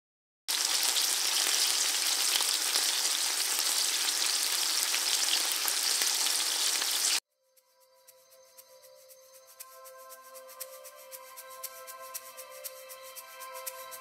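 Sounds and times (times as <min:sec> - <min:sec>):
food deep-frying in hot oil: 0:00.5 - 0:07.2.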